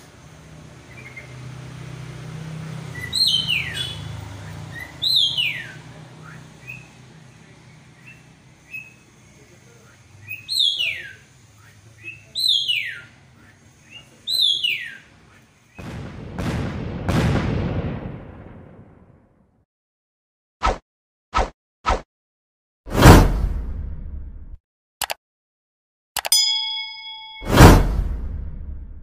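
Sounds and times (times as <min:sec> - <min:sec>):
soft bird chirps: 0:03.0 - 0:15.8.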